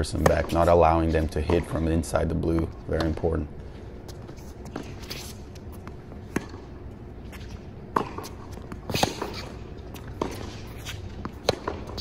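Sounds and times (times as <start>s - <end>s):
tennis ball hit by rackets: 5.8s - 6.8s, 7.9s - 12.0s.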